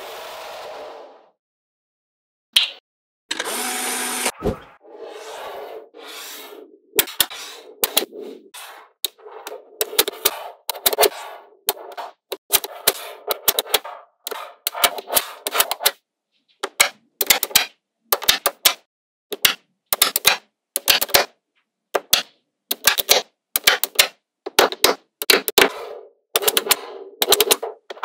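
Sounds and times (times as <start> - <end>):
magnetic balls clicking together: 22.0 - 25.7, 26.4 - 28.0.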